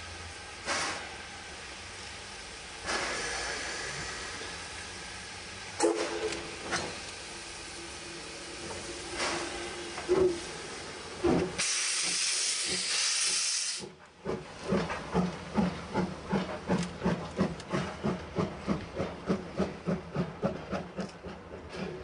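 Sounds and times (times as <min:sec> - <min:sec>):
loud hiss of steam: 0:00.0 - 0:14.0
steam locomotive exhaust chuffs: 0:00.0 - 0:22.0.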